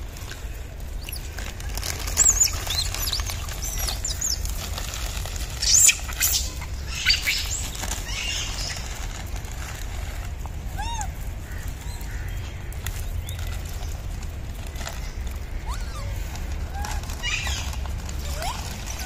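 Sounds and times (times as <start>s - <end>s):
steady low rumble: 0.0s - 19.0s
high squeaky animal calls: 2.0s - 4.5s, 5.6s - 9.0s, 15.5s - 19.0s.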